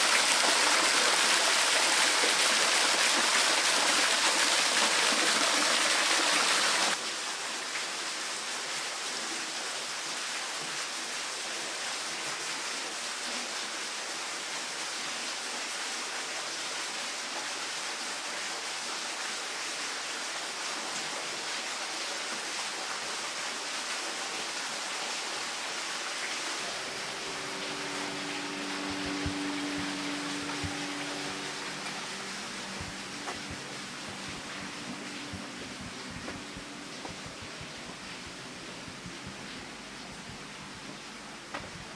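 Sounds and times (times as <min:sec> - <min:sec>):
spring water flowing and splashing: 0:00.0 - 0:41.9.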